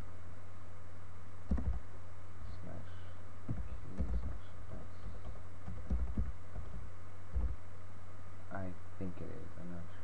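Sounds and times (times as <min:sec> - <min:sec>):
steady low hum: 0:00.0 - 0:10.0
keyboard keystrokes: 0:01.5 - 0:01.8, 0:03.5 - 0:04.4, 0:05.2 - 0:07.6.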